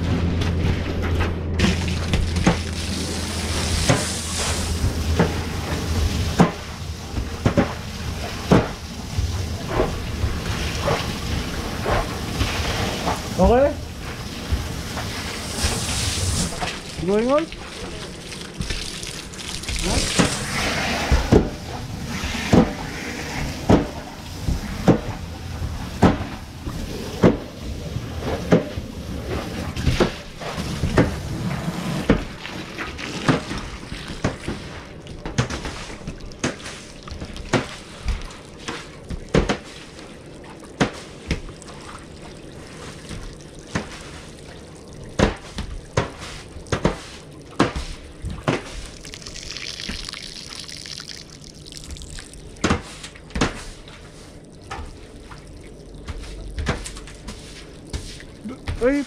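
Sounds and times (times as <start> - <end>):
hose water spraying in metal gutter: 1.6 - 42.0, 56.0 - 59.0.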